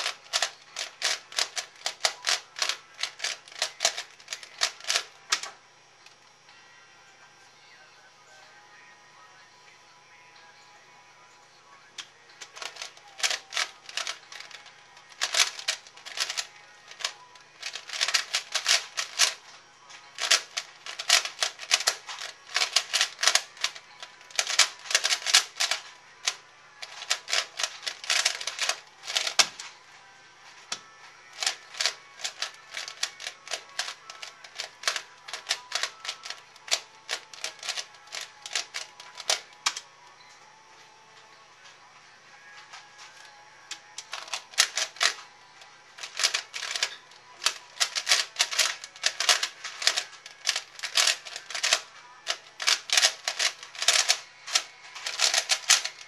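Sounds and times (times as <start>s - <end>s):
puzzle cube clicking: 0.0s - 5.6s, 12.4s - 19.4s, 20.1s - 29.7s, 31.3s - 39.8s, 43.7s - 45.2s, 46.0s - 56.0s.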